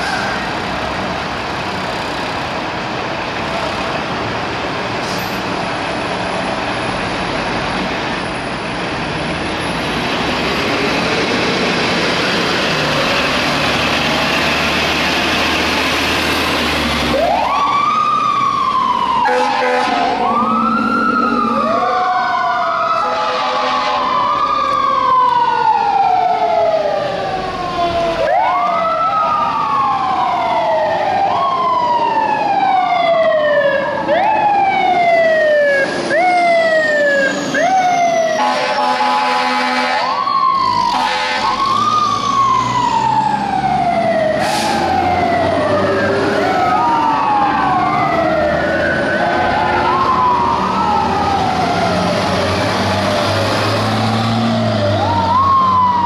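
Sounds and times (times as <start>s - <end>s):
sirens wailing: 0.0s - 56.0s
air horn blasts: 19.2s - 20.3s, 23.0s - 24.1s, 38.4s - 40.2s, 40.9s - 41.6s.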